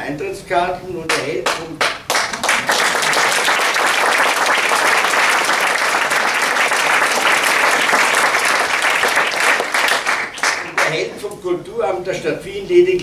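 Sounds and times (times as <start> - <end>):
audience applause: 1.8 - 11.1.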